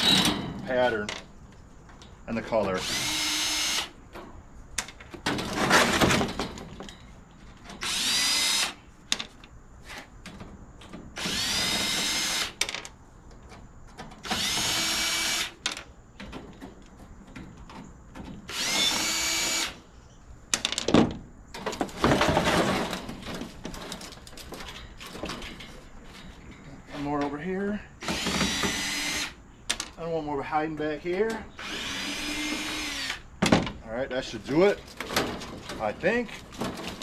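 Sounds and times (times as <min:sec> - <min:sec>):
metal panels clattering: 0:00.0 - 0:01.3, 0:04.1 - 0:07.8, 0:20.5 - 0:27.4, 0:34.5 - 0:37.0
cordless drill whining: 0:02.8 - 0:03.9, 0:07.8 - 0:08.8, 0:11.2 - 0:12.6, 0:14.2 - 0:15.6, 0:18.5 - 0:19.8, 0:28.0 - 0:29.4, 0:31.6 - 0:33.2.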